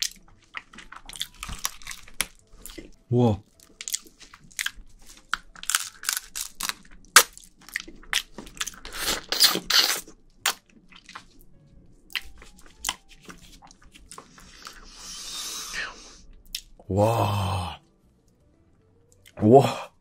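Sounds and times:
wet chewing and smacking: 0.0 - 14.8, 16.3 - 16.8
crab shell crackling: 3.5 - 10.6.

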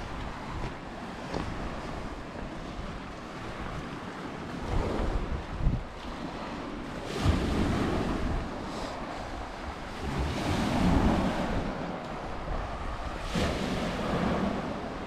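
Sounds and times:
wind buffeting microphone: 0.0 - 15.0
waves washing onto pebbles: 6.0 - 15.0.

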